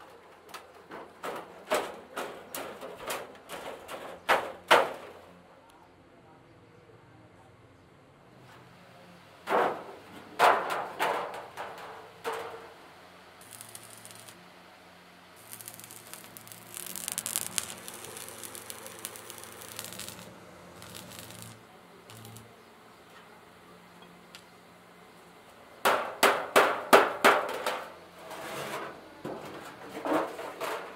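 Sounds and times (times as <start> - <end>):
steel sheets clanging and rattling: 0.4 - 5.2, 9.5 - 12.8, 25.8 - 30.9
arc welder crackling: 13.4 - 14.4, 15.4 - 27.9.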